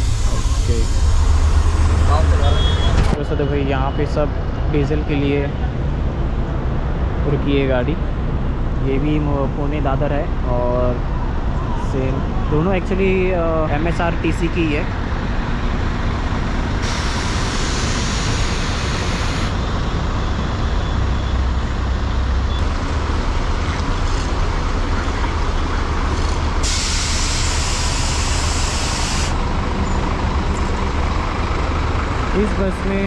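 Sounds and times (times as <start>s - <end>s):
bus diesel engine rumbling: 0.0s - 33.0s
air brake hiss: 16.8s - 19.5s, 26.6s - 29.4s.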